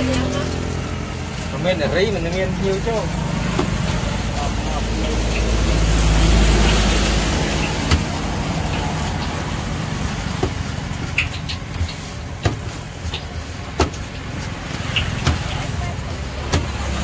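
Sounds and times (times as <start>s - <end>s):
steady traffic noise: 0.0s - 17.0s
vehicle engine humming: 0.0s - 17.0s
sharp clicks and knocks: 5.2s - 9.5s, 10.2s - 17.0s.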